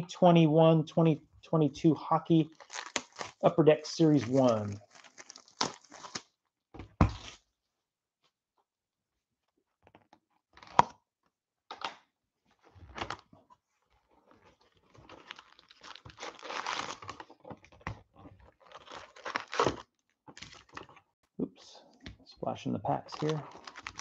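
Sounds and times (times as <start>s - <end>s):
foil packs crinkling: 2.5s - 3.4s, 4.0s - 6.2s, 14.8s - 17.4s, 18.5s - 20.9s, 23.0s - 24.0s.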